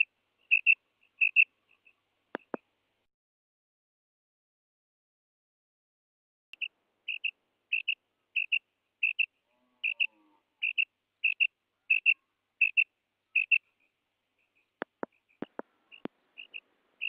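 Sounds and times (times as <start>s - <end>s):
quail calling: 0.0s - 2.6s, 6.6s - 16.7s.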